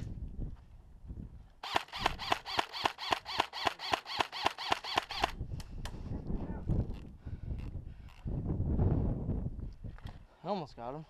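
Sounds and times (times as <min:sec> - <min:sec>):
airsoft rifle shots: 0:01.6 - 0:05.4.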